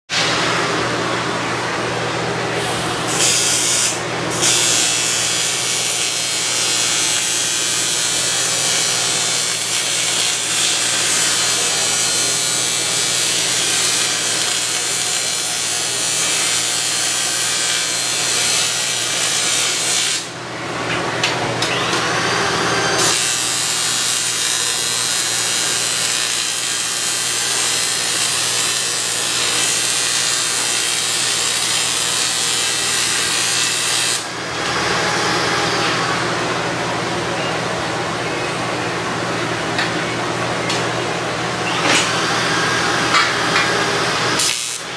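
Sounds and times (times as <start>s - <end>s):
welding arc hissing and buzzing: 2.6s - 20.4s, 23.0s - 36.2s, 41.9s - 44.9s.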